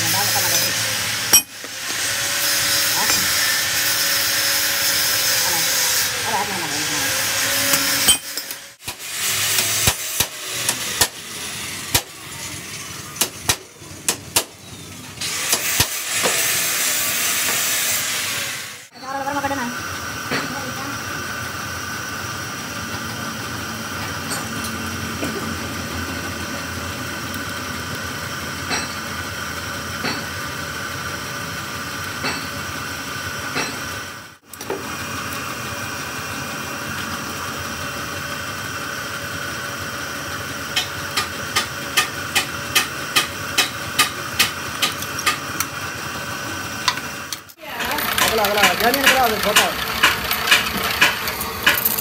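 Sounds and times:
hammer strikes on metal: 7.7s - 11.2s, 13.2s - 14.6s, 40.8s - 45.4s.

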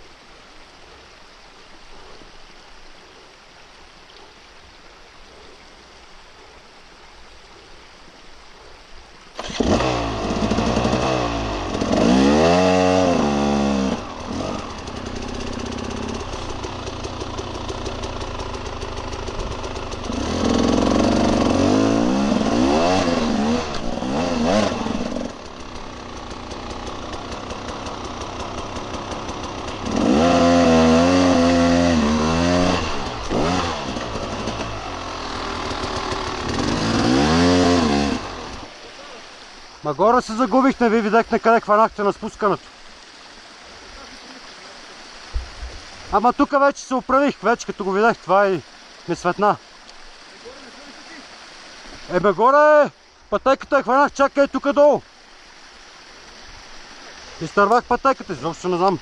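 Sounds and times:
forest stream trickling: 0.0s - 59.0s
dirt bike engine revving: 9.4s - 38.8s.

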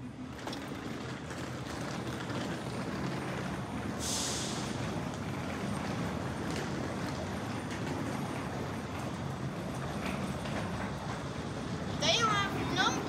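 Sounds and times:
vehicle engine rumble: 0.0s - 13.0s
sharp hiss of air: 4.0s - 4.8s.

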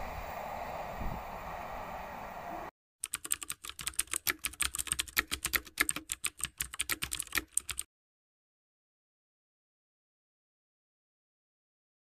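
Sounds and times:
keyboard key clicks: 3.0s - 7.9s.

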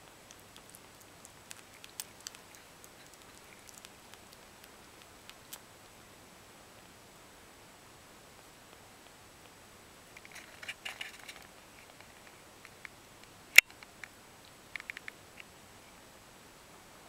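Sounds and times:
kitten suckling wet clicks: 0.0s - 5.8s.

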